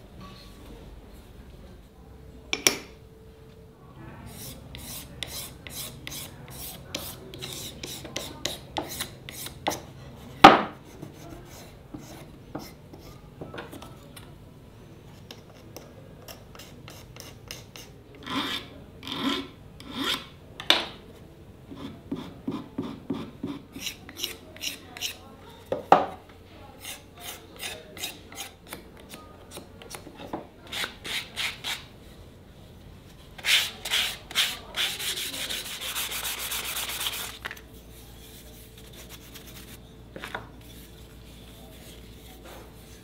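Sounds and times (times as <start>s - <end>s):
file scraping a workpiece: 4.3s - 13.2s, 15.2s - 20.4s, 21.7s - 25.3s, 26.8s - 31.9s, 33.4s - 37.4s.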